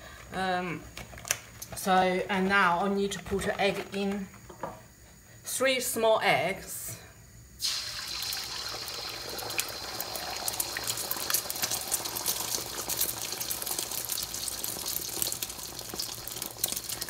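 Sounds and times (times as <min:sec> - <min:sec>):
egg sizzling in hot oil: 0:07.6 - 0:17.0.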